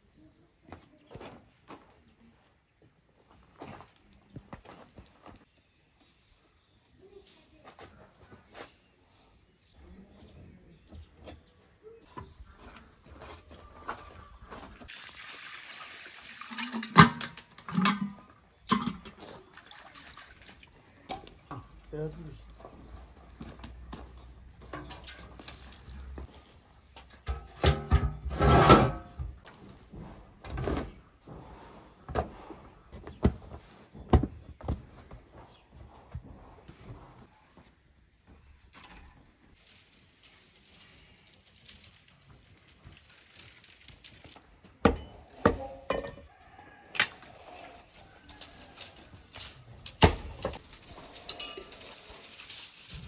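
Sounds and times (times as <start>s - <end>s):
metal lid scraping and ringing: 27.3s - 29.2s.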